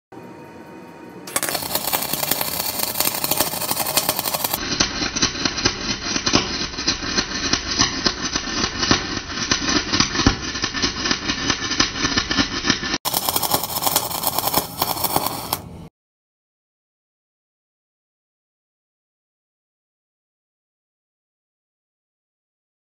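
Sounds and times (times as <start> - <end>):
welding arc crackling and popping: 1.3 - 15.8.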